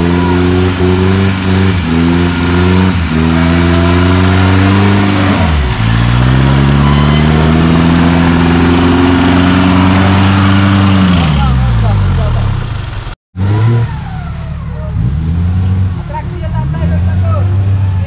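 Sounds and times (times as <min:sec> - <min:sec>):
off-road engine revving hard: 0:00.0 - 0:18.0.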